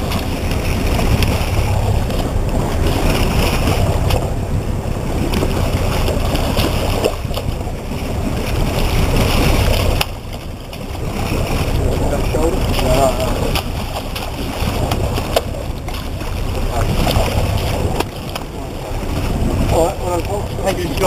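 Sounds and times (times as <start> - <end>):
water splashing and sloshing: 0.0 - 21.0
wind rumbling on microphone: 0.0 - 21.0.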